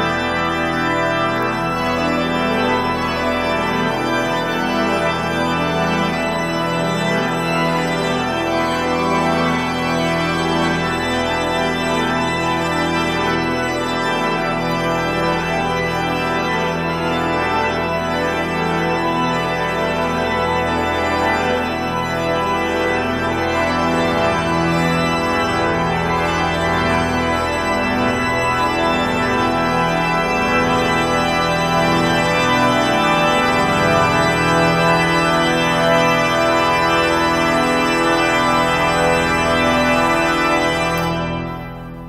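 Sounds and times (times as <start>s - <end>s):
pipe organ chords: 0.0s - 42.0s.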